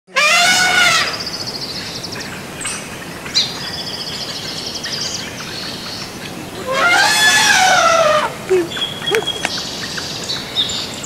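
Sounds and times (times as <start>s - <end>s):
elephant trumpeting: 0.1s - 1.3s, 6.4s - 8.7s
birds chirping with high trill: 0.1s - 11.0s.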